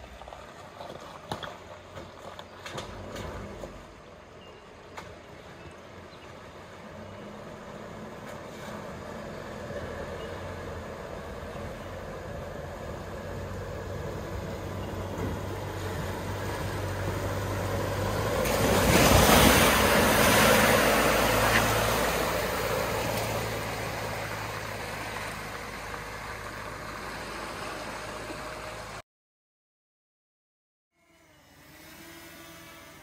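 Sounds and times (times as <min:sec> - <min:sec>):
vehicle engine running: 0:06.0 - 0:29.0
water splashing: 0:15.8 - 0:27.9.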